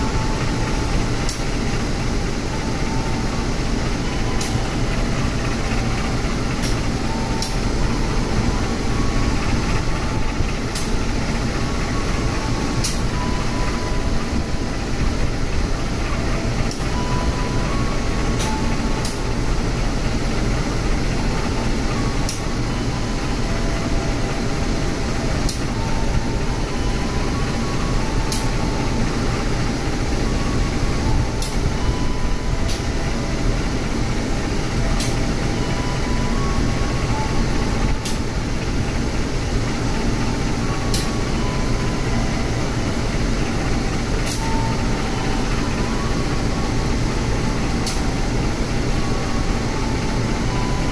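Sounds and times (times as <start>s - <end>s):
diesel locomotive idling: 0.0s - 50.9s.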